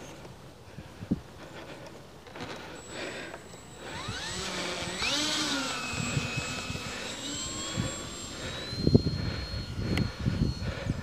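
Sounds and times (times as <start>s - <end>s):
model plane motor whining: 2.3s - 11.0s
wind buffeting microphone: 3.8s - 11.0s.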